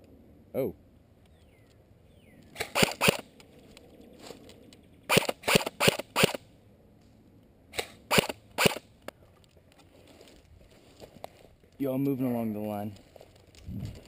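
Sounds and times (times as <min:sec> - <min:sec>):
airsoft rifle shots: 0:02.6 - 0:03.3, 0:05.1 - 0:06.4, 0:07.7 - 0:08.9.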